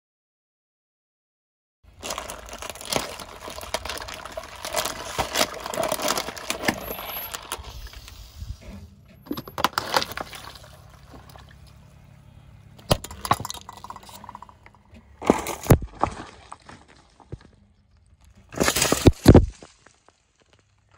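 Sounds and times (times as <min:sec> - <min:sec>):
plastic containers cracking: 0:01.9 - 0:08.0, 0:09.2 - 0:11.9, 0:12.8 - 0:20.7
objects crunching under car tyre: 0:01.9 - 0:20.9
liquid splashing: 0:09.9 - 0:11.8.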